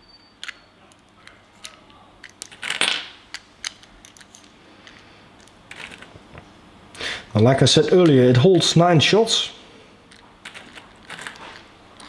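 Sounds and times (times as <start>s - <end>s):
pellets rattling: 10.4s - 11.7s.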